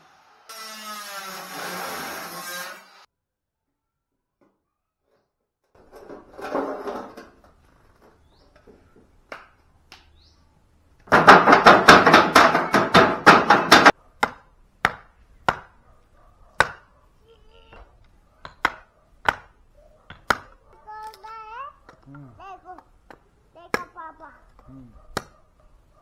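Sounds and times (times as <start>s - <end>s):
hatchet chopping wood: 11.1s - 15.8s, 16.6s - 16.9s, 18.5s - 20.6s.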